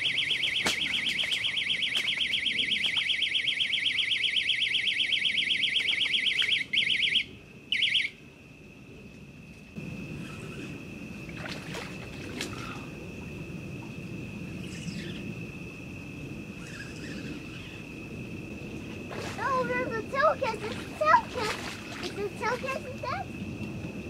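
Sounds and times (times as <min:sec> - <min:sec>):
electronic bite alarm beeping: 0:00.0 - 0:08.1.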